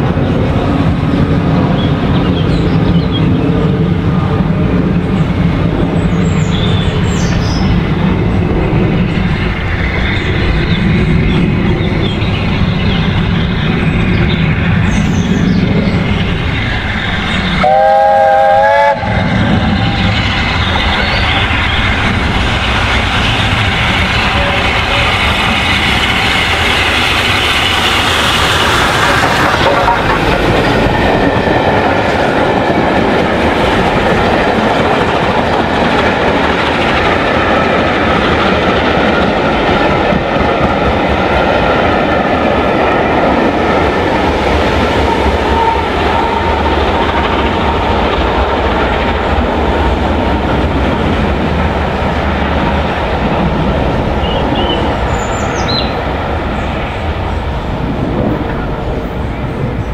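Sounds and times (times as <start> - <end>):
steam locomotive exhaust beats: 0.0 - 59.9
steam whistle blast: 17.6 - 19.2.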